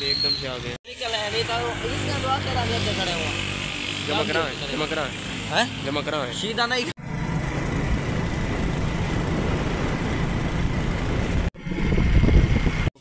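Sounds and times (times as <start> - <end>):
motorcycle engine running: 7.0 - 12.9
wind noise on microphone: 8.5 - 12.9.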